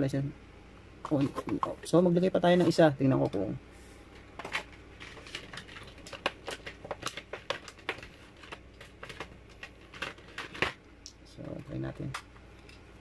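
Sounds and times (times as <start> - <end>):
plastic bag crinkling: 4.2 - 10.8.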